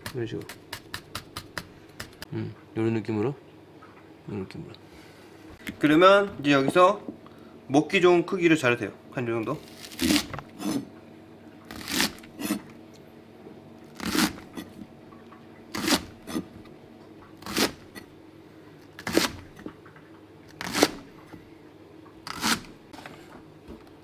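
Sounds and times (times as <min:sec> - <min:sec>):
knife cutting onion on plastic board: 0:00.0 - 0:02.2, 0:09.6 - 0:10.9, 0:11.7 - 0:12.7, 0:13.9 - 0:14.8, 0:15.7 - 0:16.5, 0:17.4 - 0:18.1, 0:19.0 - 0:19.7, 0:20.5 - 0:21.1, 0:22.3 - 0:22.8.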